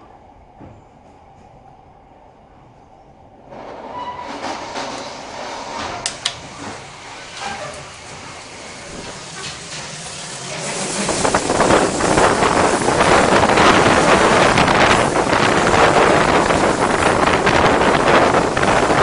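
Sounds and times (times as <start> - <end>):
train wheels rumbling on rails: 3.4 - 19.0
sharp clicks of rails: 3.7 - 11.1.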